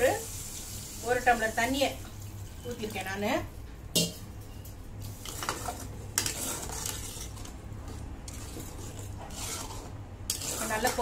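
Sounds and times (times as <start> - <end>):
ladle stirring gravy in pot: 5.2 - 11.0.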